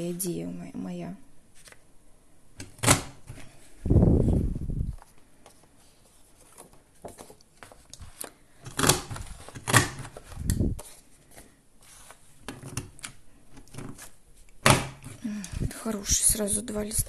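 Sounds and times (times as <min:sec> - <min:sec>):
faint paper rustling: 0:01.5 - 0:01.8, 0:03.3 - 0:14.5.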